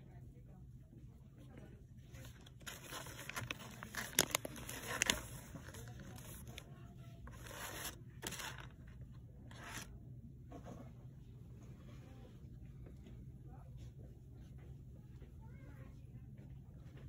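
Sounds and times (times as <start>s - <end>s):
rustling handling noises: 1.4s - 10.9s.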